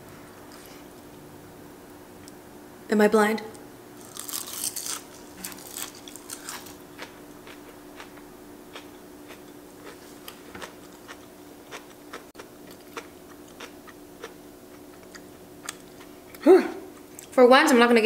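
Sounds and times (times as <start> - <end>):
person chewing food: 4.0 - 17.3.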